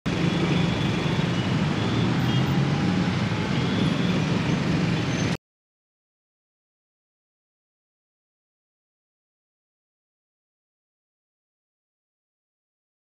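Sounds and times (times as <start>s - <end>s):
street hum: 0.1s - 5.4s.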